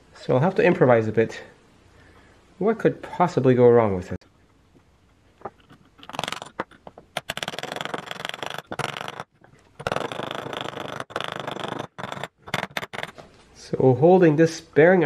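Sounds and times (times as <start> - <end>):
metal threads rasping: 5.5 - 13.3.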